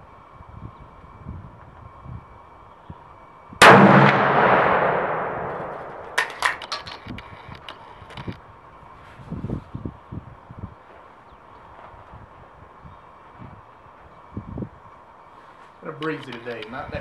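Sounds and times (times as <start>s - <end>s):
shotgun blast echoing: 3.6s - 6.8s
gun action metallic clicks: 4.1s - 8.4s.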